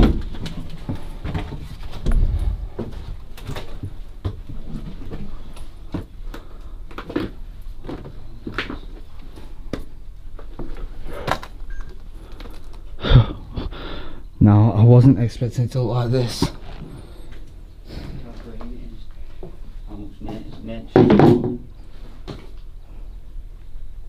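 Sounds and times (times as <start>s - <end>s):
footsteps on bare stairs: 0.0s - 11.4s.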